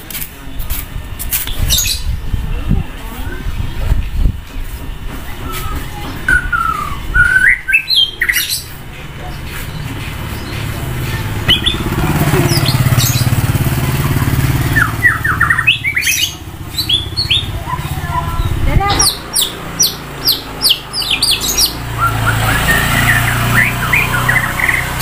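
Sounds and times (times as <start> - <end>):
bird singing whistled notes: 5.4 - 8.7, 11.4 - 13.4, 14.6 - 25.0
vehicle passing: 8.4 - 25.0.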